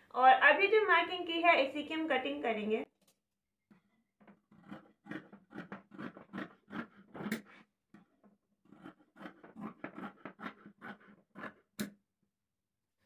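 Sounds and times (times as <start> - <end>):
scissors snipping fabric: 4.4 - 8.1, 8.7 - 12.0.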